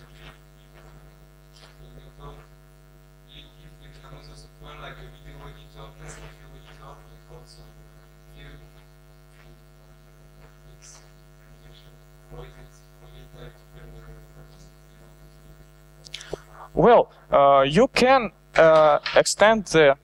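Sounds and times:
electrical mains hum: 0.0 - 20.0.

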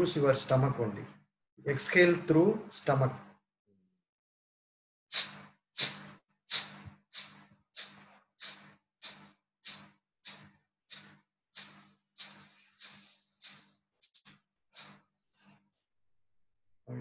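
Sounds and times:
sharp nasal exhalations: 5.1 - 15.6.

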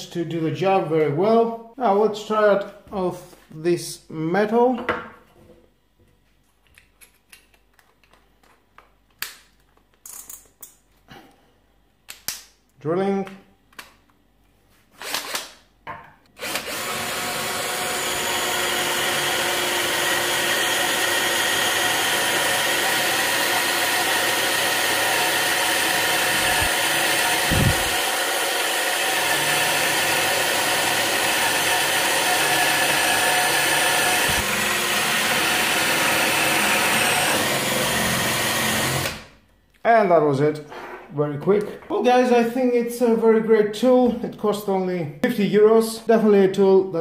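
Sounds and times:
cordless drill boring into metal: 16.4 - 39.3.

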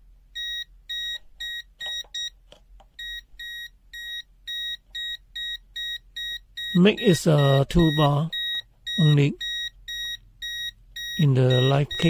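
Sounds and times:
short high alarm beeps: 3.0 - 12.0.

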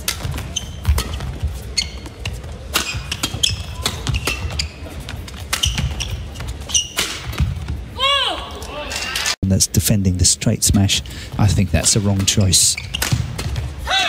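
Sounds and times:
shoes squeaking on court: 0.0 - 7.9, 11.4 - 13.9.

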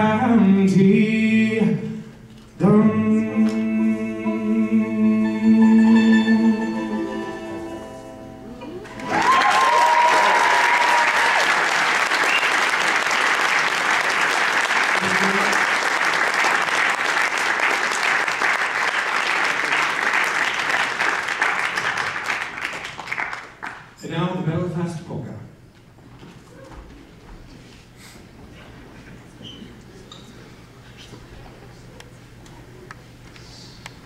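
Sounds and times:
audience applause and cheers: 8.8 - 24.0.

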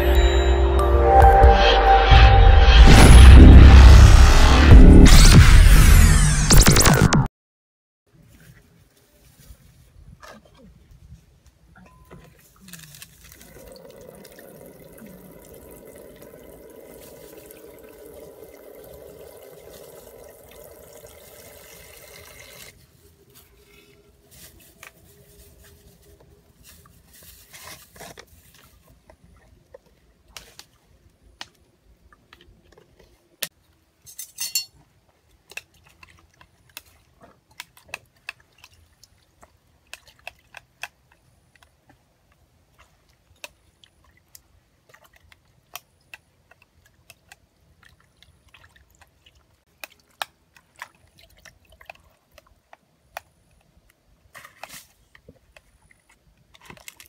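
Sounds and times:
water running into plastic basin: 13.2 - 22.8.

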